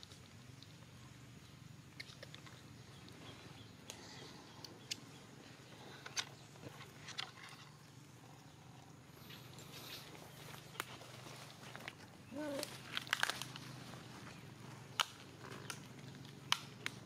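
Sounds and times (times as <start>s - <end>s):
low background hum: 0.0s - 17.0s
rustling dry leaves and twigs: 5.0s - 17.0s.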